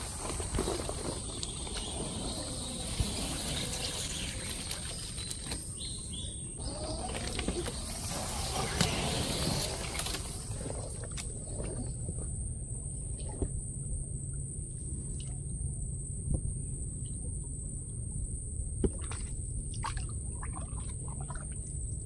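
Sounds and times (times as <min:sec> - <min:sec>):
paddle in water: 0:00.0 - 0:13.6.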